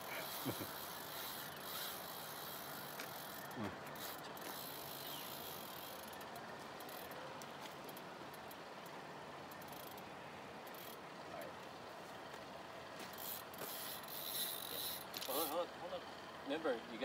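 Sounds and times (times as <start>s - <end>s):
steady background hiss: 0.0s - 17.0s
fishing reel drag clicking: 0.1s - 7.2s, 9.5s - 10.0s, 10.7s - 11.0s, 13.2s - 15.6s.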